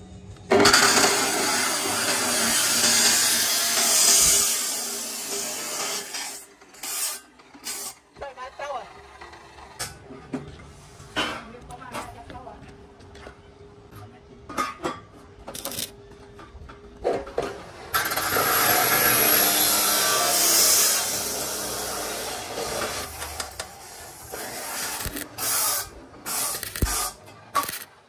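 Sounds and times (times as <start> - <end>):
welding arc crackling hiss: 0.7 - 8.0, 18.0 - 27.8.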